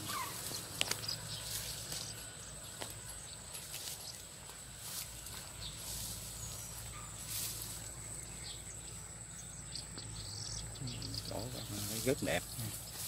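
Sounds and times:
leaves rustling: 0:00.0 - 0:09.3, 0:11.1 - 0:13.0.

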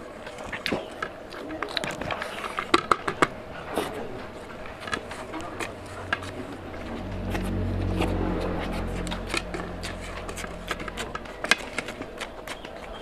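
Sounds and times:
low rumble: 0:04.3 - 0:12.4.

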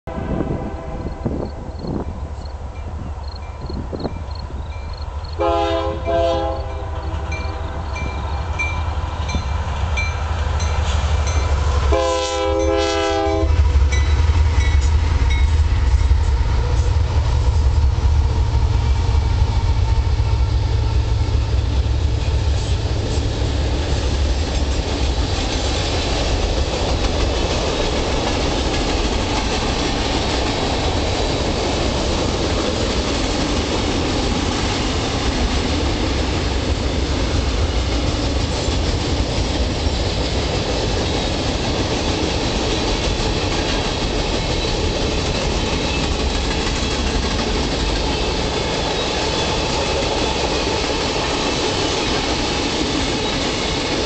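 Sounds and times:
train air horn blasts: 0:00.0 - 0:01.7, 0:05.4 - 0:08.0, 0:10.9 - 0:13.8
wind buffeting microphone: 0:00.1 - 0:05.3
train wheels clattering on rails: 0:01.2 - 0:54.0.

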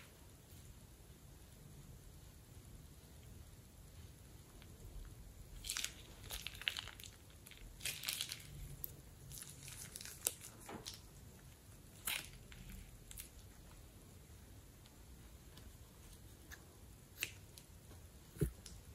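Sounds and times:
plastic bag crinkling: 0:05.6 - 0:11.1.

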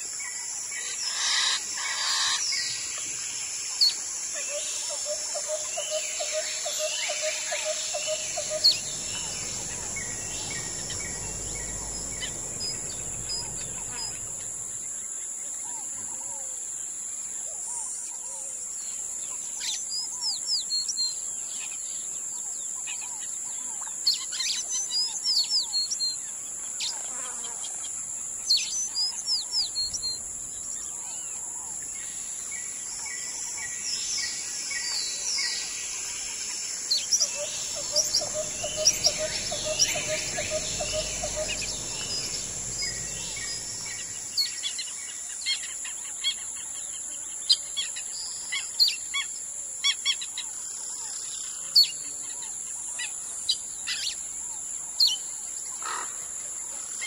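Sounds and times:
high-pitched insect drone: 0:00.8 - 0:15.3, 0:28.7 - 0:45.1
birds whistling calls: 0:05.4 - 0:14.9, 0:36.9 - 0:44.6.

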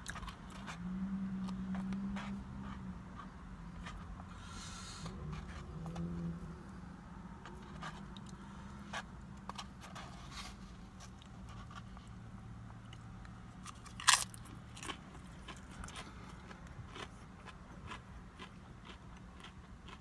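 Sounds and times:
chewing and crunching chips: 0:00.0 - 0:04.0, 0:12.8 - 0:20.0.

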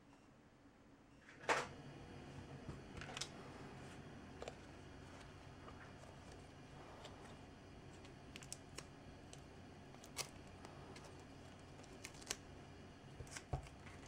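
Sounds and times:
low steady hum: 0:00.0 - 0:14.0
masking tape peeling crinkles: 0:07.9 - 0:12.5, 0:13.1 - 0:14.0.

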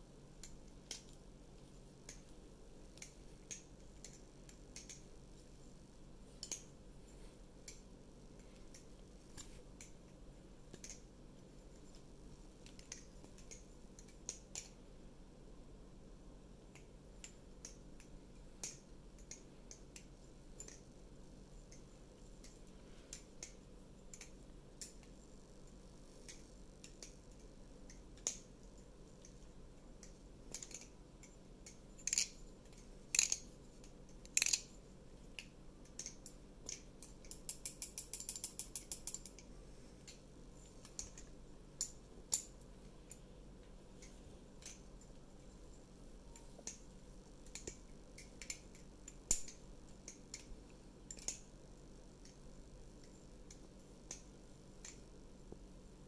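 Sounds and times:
butterfly knife clicking: 0:03.0 - 0:05.0, 0:30.0 - 0:33.5, 0:34.2 - 0:34.7.

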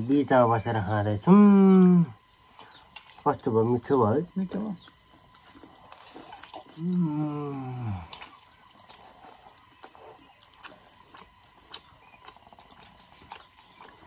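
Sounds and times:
eating clicks and wet smacks: 0:04.6 - 0:06.9, 0:08.0 - 0:14.0.

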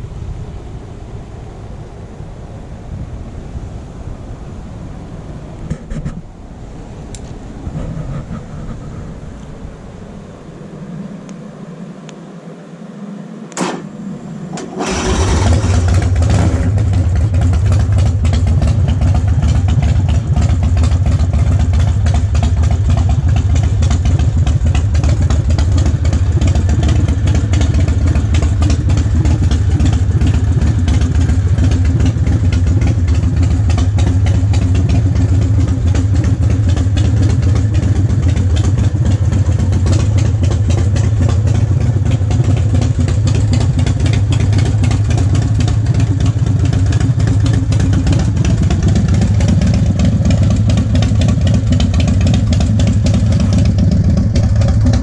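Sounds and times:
motorcycle engine starting and idling: 0:13.5 - 0:55.0.

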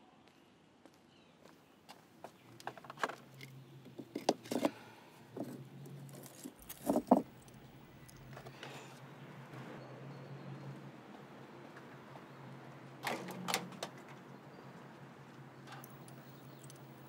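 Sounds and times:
stones clicking and scraping: 0:02.6 - 0:04.8, 0:05.4 - 0:08.5.

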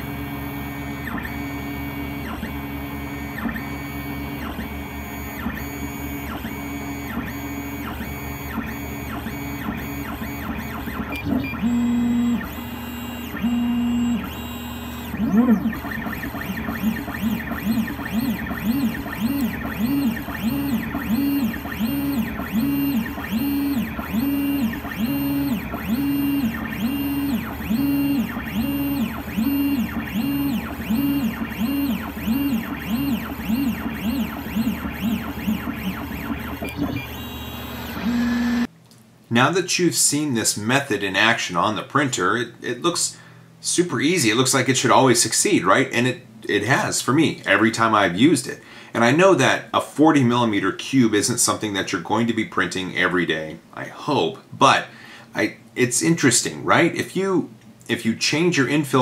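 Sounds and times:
stepper motors whining: 0:00.3 - 0:38.7.

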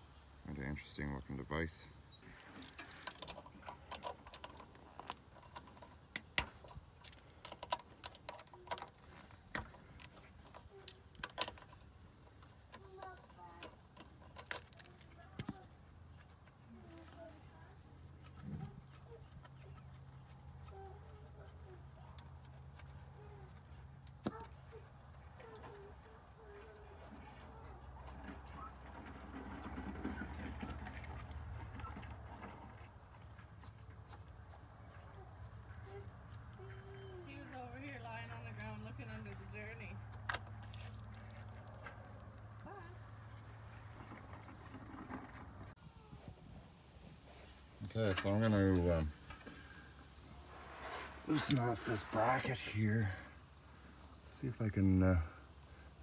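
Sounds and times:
small metal parts clinking: 0:02.4 - 0:17.2.

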